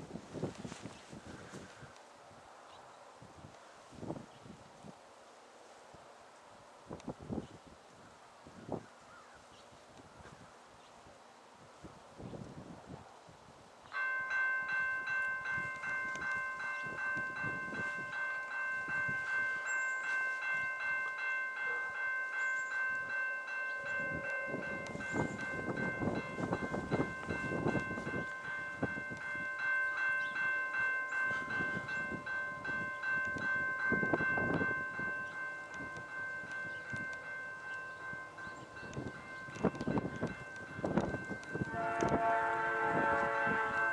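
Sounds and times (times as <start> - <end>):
level crossing bell ringing: 14.0 - 42.0.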